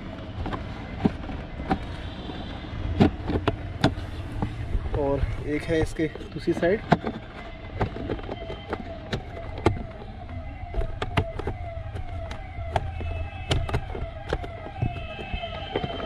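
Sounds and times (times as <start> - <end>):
electronic siren yelping: 6.6 - 16.0.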